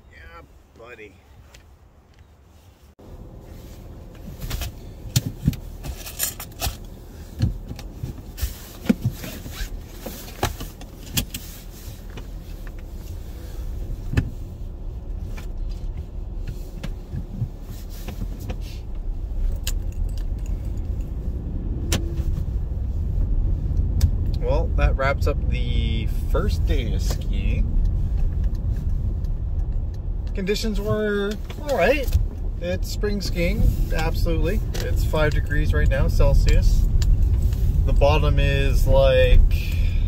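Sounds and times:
car engine rumble: 0.0 - 40.0
clicks and jingling in car: 4.1 - 13.0, 15.4 - 21.3, 26.4 - 39.8.

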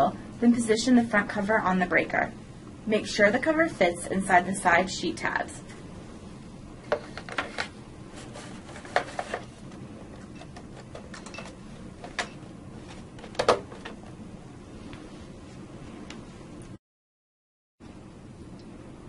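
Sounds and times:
plastic cover clicks and knocks: 13.2 - 14.0.

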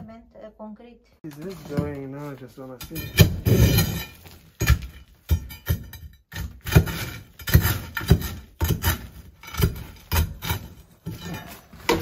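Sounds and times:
steel bar jabbing concrete rubble: 2.9 - 12.0.

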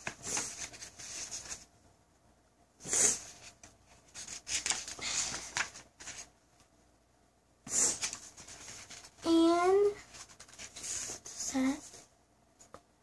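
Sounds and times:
paper pages rustling and turning: 0.0 - 1.7, 2.9 - 6.3, 7.7 - 12.1.

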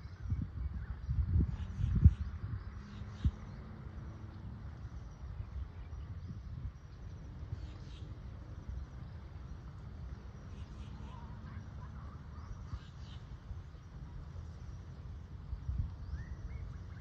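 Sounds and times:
birds chirping: 0.0 - 17.0
low outdoor rumble: 0.0 - 17.0.

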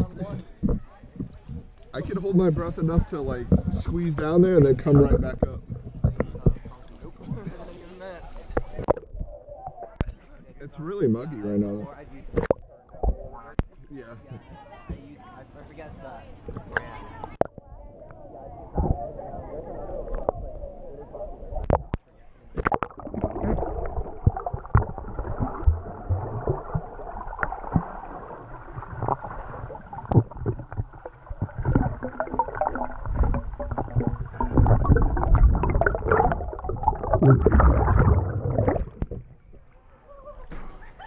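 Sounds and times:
small knocks underwater: 0.0 - 2.0, 2.8 - 7.6, 8.3 - 10.2, 12.3 - 15.1, 18.7 - 19.1, 21.6 - 39.7
muffled underwater gurgling: 18.5 - 39.7.

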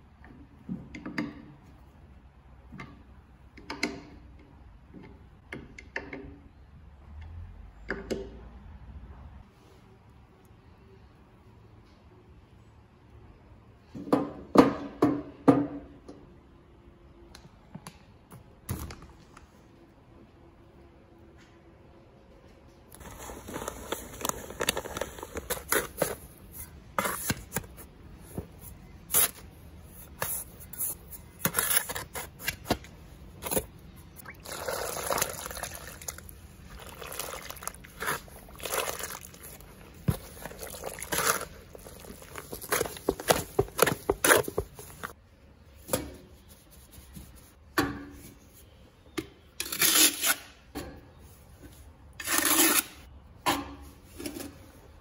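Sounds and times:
trowel stirring wet mortar: 33.4 - 45.1.

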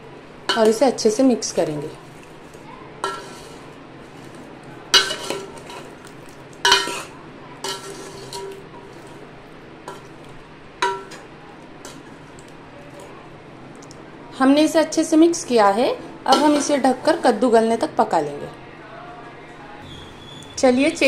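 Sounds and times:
spoon clinking against metal pot: 0.5 - 1.0, 3.0 - 3.7, 5.0 - 9.2, 10.8 - 12.5, 16.3 - 16.8
metal spoon stirring in a pot: 0.5 - 13.2, 16.3 - 17.4.

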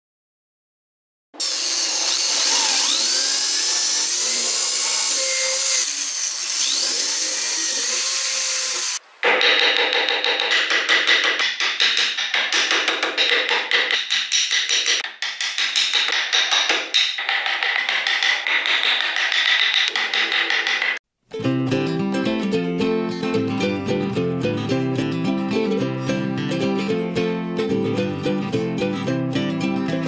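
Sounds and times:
electric drill boring into wood: 1.4 - 9.0.

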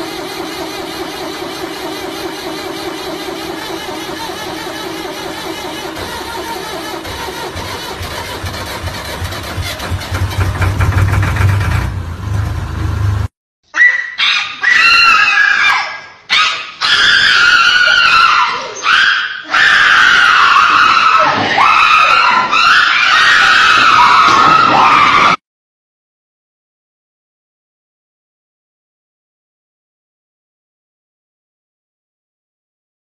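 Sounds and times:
loud rumbling rattling: 0.0 - 13.3
people screaming: 13.8 - 25.4.

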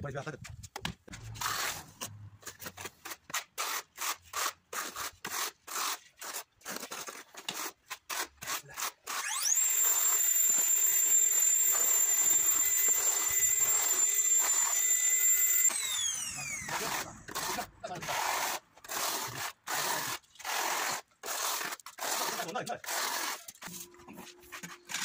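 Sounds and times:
trowel scraping adhesive: 1.1 - 14.8, 16.4 - 25.0
electric power tool whining: 9.1 - 18.6.

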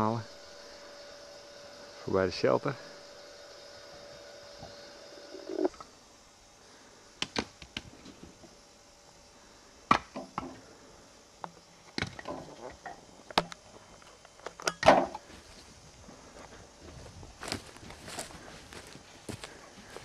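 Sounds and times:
wood knocking and snapping: 14.5 - 15.2.

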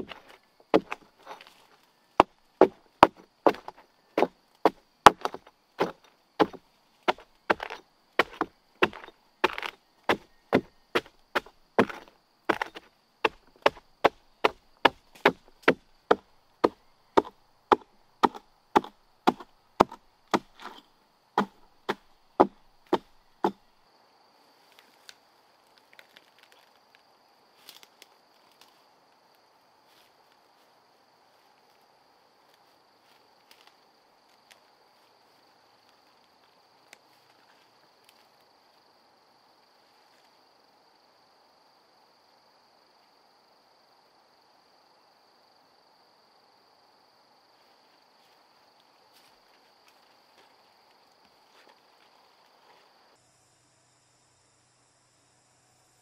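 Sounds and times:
wood being chopped: 0.0 - 1.4, 2.2 - 20.8, 21.4 - 23.6
faint insect calls: 0.0 - 56.0.

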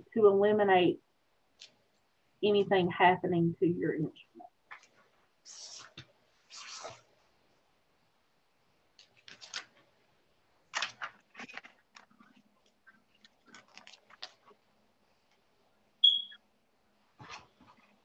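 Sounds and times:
rustling and clicking: 8.9 - 9.9, 10.7 - 15.5
sharp high-pitched squeak: 16.0 - 16.4.

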